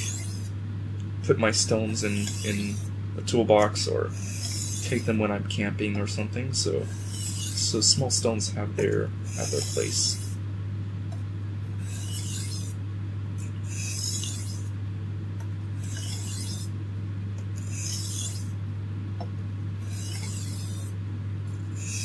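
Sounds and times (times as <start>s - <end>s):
knife scraping on sharpening stone: 1.9s - 2.9s, 4.1s - 5.1s, 6.8s - 7.7s, 9.3s - 10.3s, 11.8s - 12.7s, 13.4s - 14.7s, 15.8s - 16.7s, 17.6s - 18.5s, 19.8s - 20.9s, 21.8s - 22.0s.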